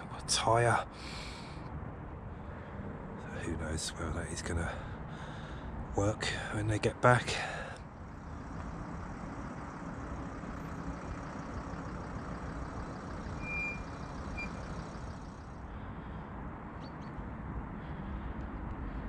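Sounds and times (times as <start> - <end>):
outdoor background rumble: 0.0 - 19.0
faint high chirp: 8.1 - 15.6.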